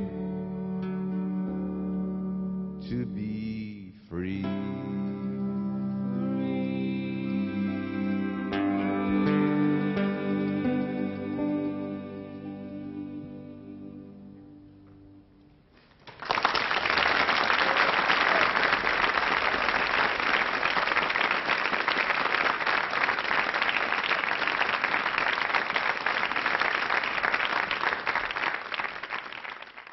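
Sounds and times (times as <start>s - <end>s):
audience applause: 16.0s - 29.9s.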